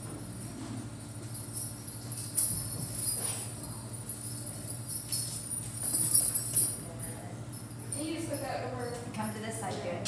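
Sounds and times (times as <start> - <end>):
steady low hum: 0.0 - 10.0
metal buckles jingling: 1.2 - 6.9.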